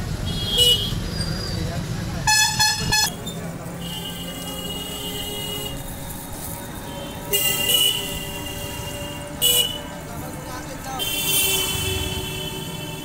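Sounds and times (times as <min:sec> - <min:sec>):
vehicle horns honking: 0:00.2 - 0:01.1, 0:02.2 - 0:06.2, 0:06.8 - 0:10.1, 0:10.8 - 0:13.0.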